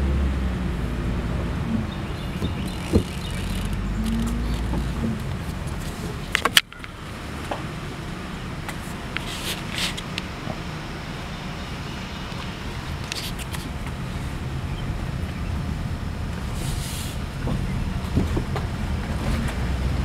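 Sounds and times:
car engine rumble from inside cabin: 0.0s - 20.0s
sharp clicks: 2.4s - 5.4s.

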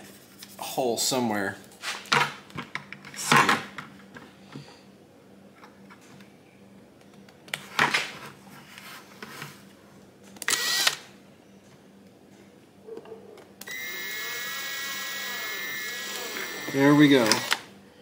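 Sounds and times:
cordless drill whining: 10.5s - 11.0s, 13.7s - 17.6s.

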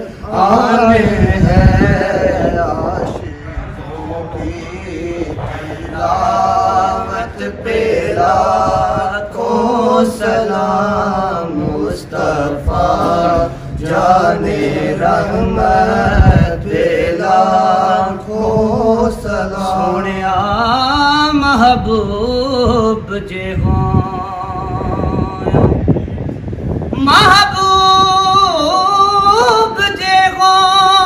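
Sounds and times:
men humming drone: 0.0s - 26.0s.

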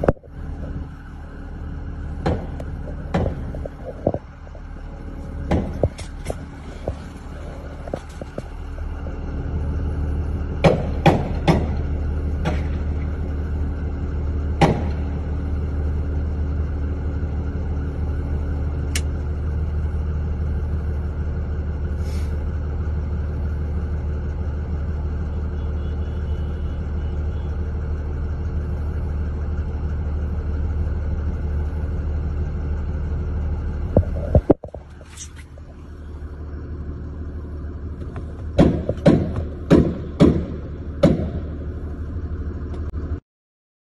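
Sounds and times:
vehicle engine running: 0.0s - 43.2s.

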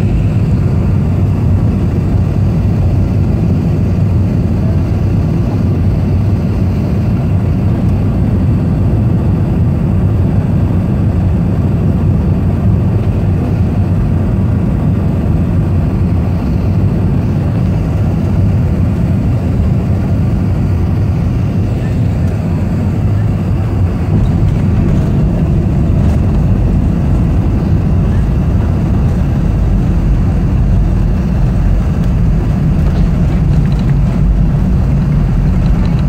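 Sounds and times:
airliner engines rumbling: 0.0s - 36.0s
rushing air: 20.4s - 36.0s.

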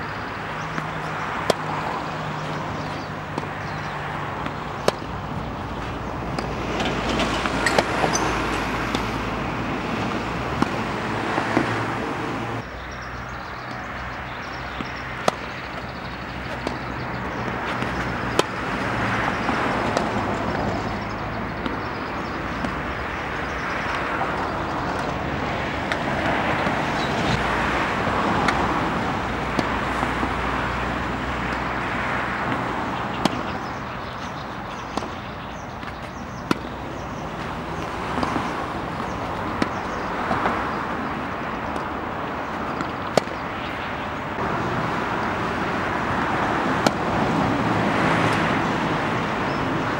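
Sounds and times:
loud background rush: 0.0s - 49.9s
tennis ball struck by rackets: 0.7s - 12.3s, 14.7s - 25.2s, 25.8s - 27.5s, 29.3s - 31.7s, 32.4s - 33.8s, 34.7s - 36.8s, 37.4s - 42.0s, 42.6s - 43.8s, 46.1s - 47.1s.

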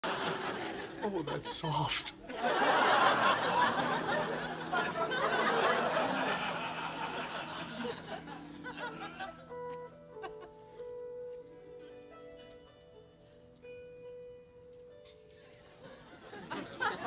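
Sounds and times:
studio audience laughing: 0.0s - 9.4s, 15.8s - 17.0s
music with held notes: 0.0s - 17.0s.

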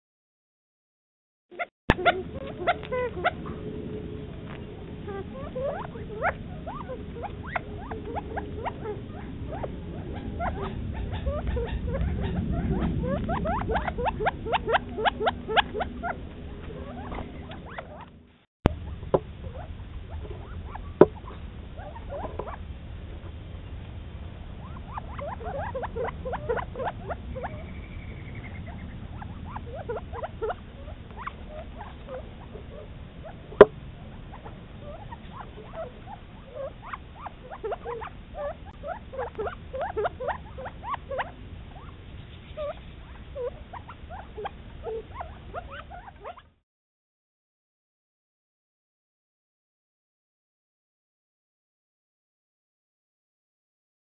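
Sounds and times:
quail clucking and chipping: 1.6s - 3.7s, 4.4s - 23.4s, 24.6s - 46.6s.

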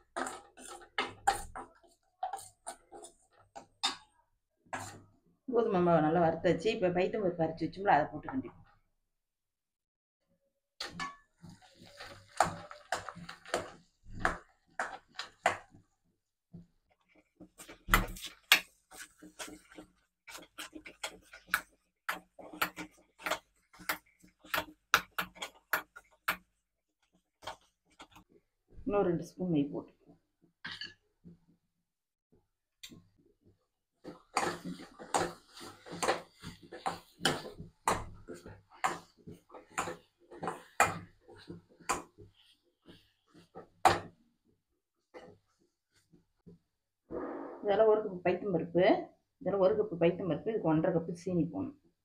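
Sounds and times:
spoon scraping a metal pan: 0.0s - 5.0s, 10.8s - 15.8s, 17.4s - 26.4s, 34.0s - 42.2s.

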